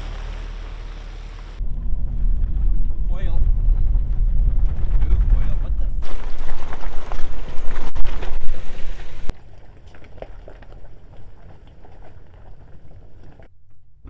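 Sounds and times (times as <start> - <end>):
vehicle engine rumbling: 0.0 - 14.0
tyres crunching over stones: 6.0 - 13.5.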